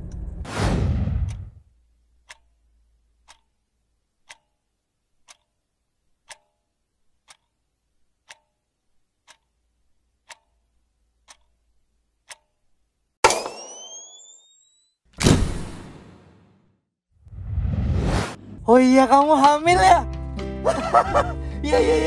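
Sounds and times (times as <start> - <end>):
clock ticking: 1.3 - 12.9.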